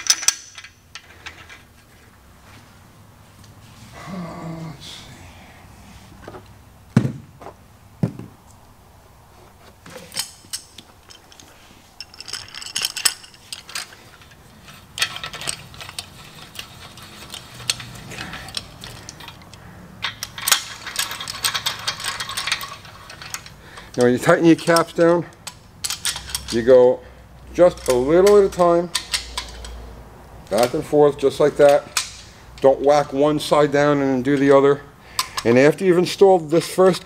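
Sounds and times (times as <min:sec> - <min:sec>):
metal clinking and clattering: 0:09.9 - 0:24.1.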